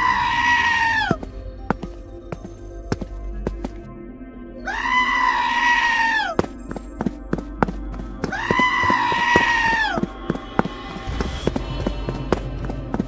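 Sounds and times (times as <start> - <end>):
background music with clicking beat: 1.0 - 3.9, 6.1 - 13.0
high-pitched wailing cries: 4.6 - 6.4, 8.3 - 10.0.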